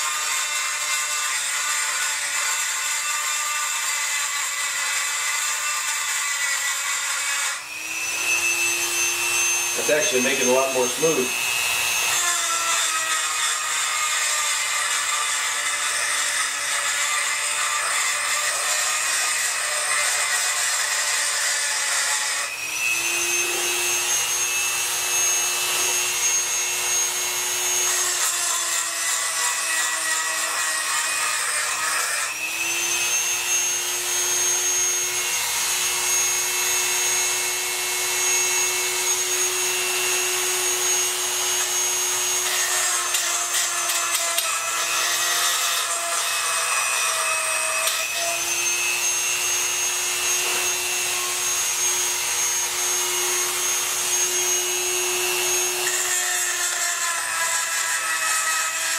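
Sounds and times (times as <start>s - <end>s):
rotary tool grinding metal: 0.0s - 58.9s.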